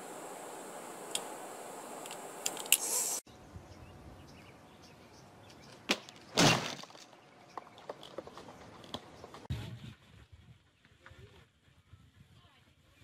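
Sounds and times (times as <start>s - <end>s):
plastic chair crashing: 6.3s - 7.0s.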